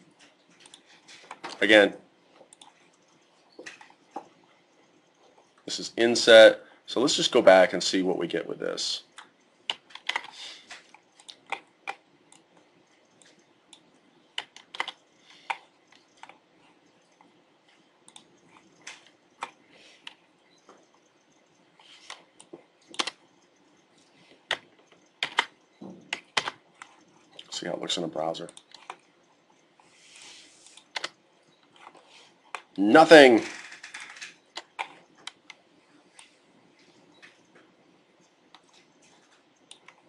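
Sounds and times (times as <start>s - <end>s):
computer keyboard typing: 9.1s - 13.8s, 14.4s - 16.4s, 21.9s - 23.2s, 24.5s - 27.5s, 30.8s - 31.2s.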